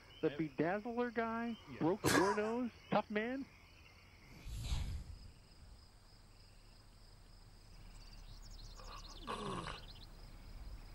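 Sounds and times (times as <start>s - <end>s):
birds chirping: 0.0s - 10.9s
high insect buzz: 3.7s - 10.9s.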